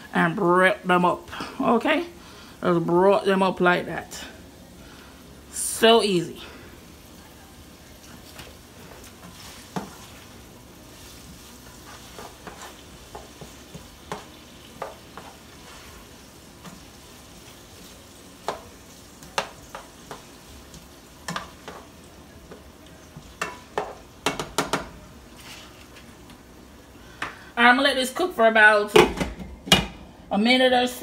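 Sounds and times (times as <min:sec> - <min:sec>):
vegetables sizzling in oil: 0:03.4 - 0:27.6
spatula knocking against pan: 0:12.2 - 0:15.3, 0:23.4 - 0:24.9.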